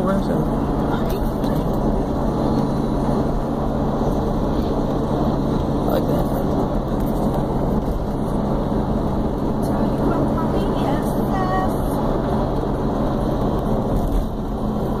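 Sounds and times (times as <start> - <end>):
car road noise: 0.0 - 15.0.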